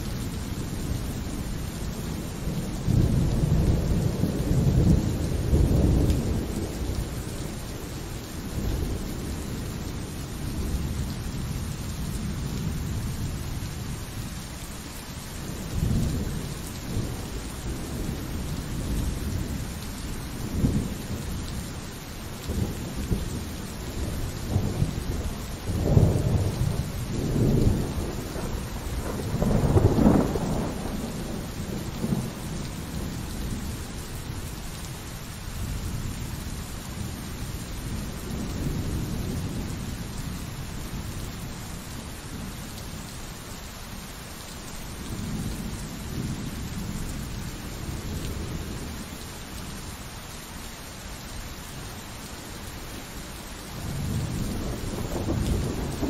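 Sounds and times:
steady rain: 0.0 - 56.0
rolling thunder: 22.4 - 33.8, 53.8 - 56.0.

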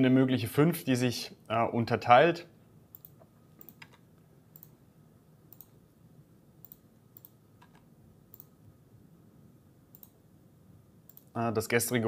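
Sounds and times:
low room hum: 0.0 - 12.0
computer mouse and keyboard clicks: 2.9 - 4.0, 5.5 - 5.8, 6.6 - 8.5.

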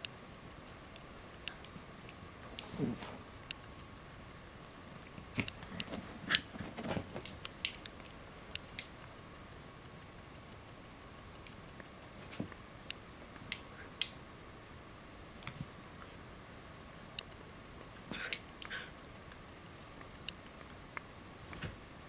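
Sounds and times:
dogs scuffling on carpet: 5.6 - 7.4.

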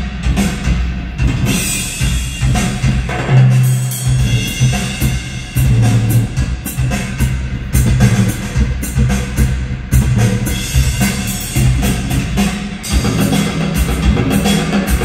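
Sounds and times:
deep subwoofer bass: 0.0 - 15.0
drum-heavy music over speakers: 0.0 - 15.0.

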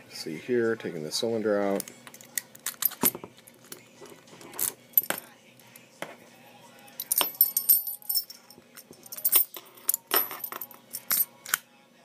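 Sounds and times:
keys jangling: 6.9 - 11.3.

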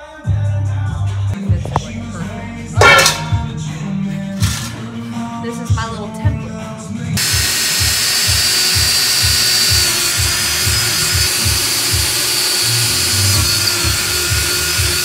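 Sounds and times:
background music with steady beat: 0.0 - 15.0
cordless drill boring into wood: 7.2 - 15.0.

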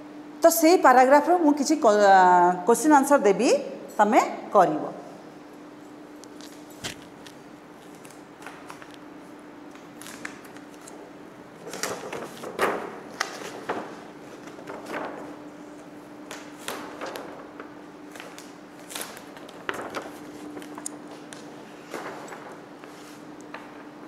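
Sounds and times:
faint steady hum: 0.0 - 24.0
paper rustling and crackling: 6.3 - 9.0, 9.7 - 11.0, 11.6 - 23.9.

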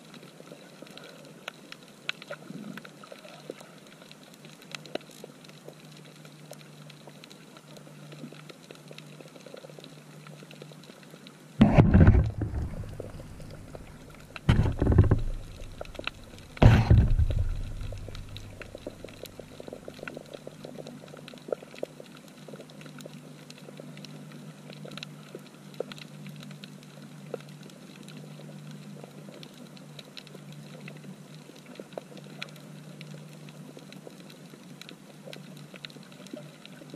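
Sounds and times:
crackle of small clicks: 0.0 - 36.9
low hum: 11.6 - 19.7
low thumping rushes underwater: 11.6 - 19.8.

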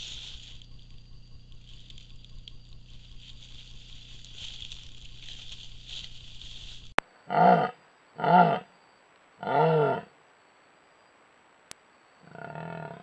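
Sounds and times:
jaguar calling: 0.0 - 8.8, 9.4 - 10.2, 12.2 - 13.0.

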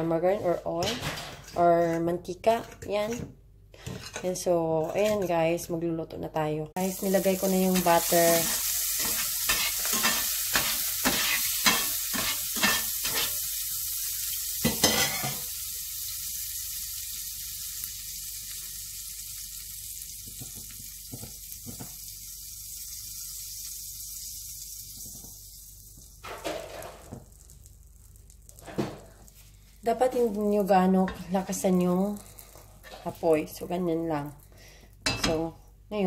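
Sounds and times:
butter sizzling in frying pan: 6.8 - 34.5.

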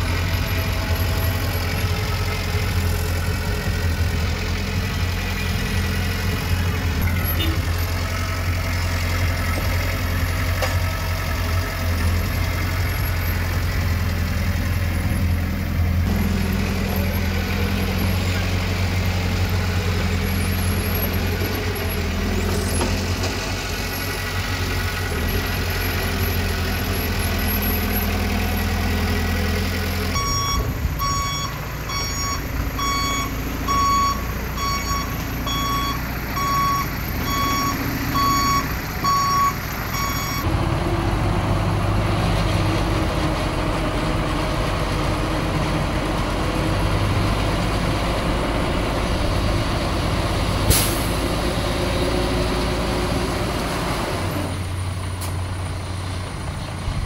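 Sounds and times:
diesel engine running: 0.0 - 57.0
reversing alarm beeping: 30.1 - 40.5.

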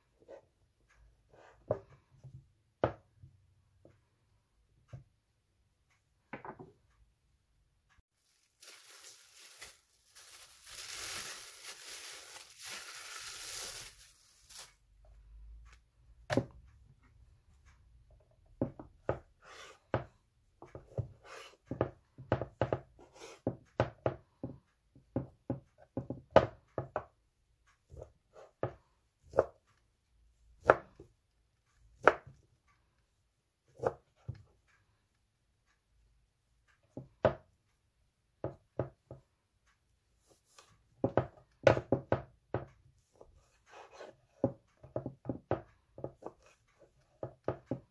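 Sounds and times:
plastic wrapping rustling: 8.2 - 14.8.

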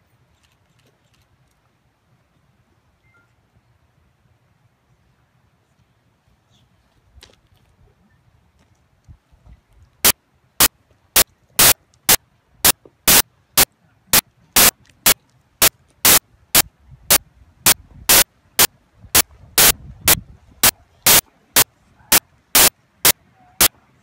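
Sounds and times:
bursts of hissing static: 10.0 - 23.8.

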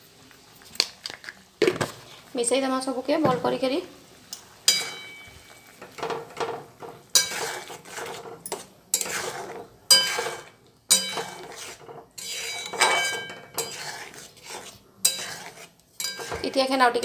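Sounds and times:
metal ladle scraping a wok: 4.7 - 17.0.

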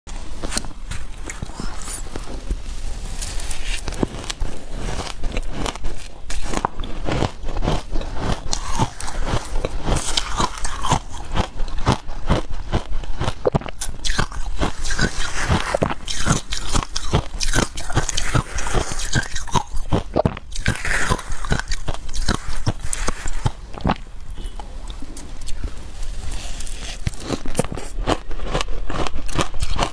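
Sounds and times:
ice crunching in mouth: 0.3 - 29.9.

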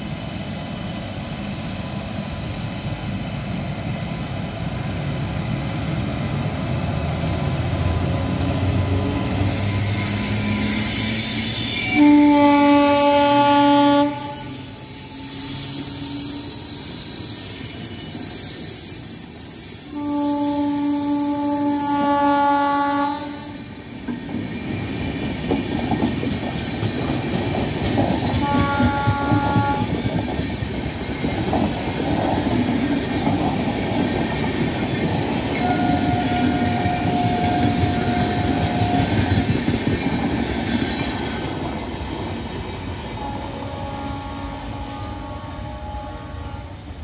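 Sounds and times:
train wheels rumbling and clattering: 0.0 - 22.6, 23.4 - 47.0
multi-tone train horn: 9.4 - 16.9, 19.9 - 23.7, 28.2 - 30.1, 35.5 - 39.5, 43.1 - 47.0.

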